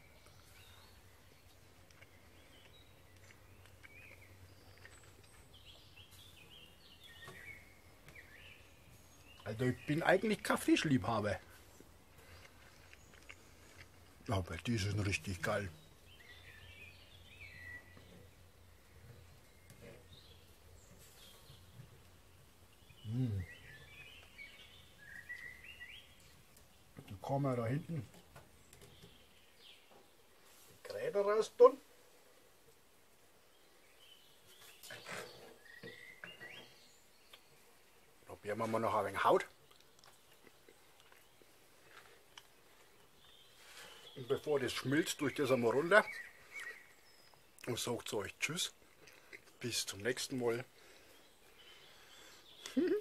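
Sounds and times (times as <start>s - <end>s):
faint bird chirps: 0.0s - 11.5s, 12.2s - 31.9s, 33.5s - 53.0s
man humming: 23.0s - 23.5s, 52.7s - 53.0s.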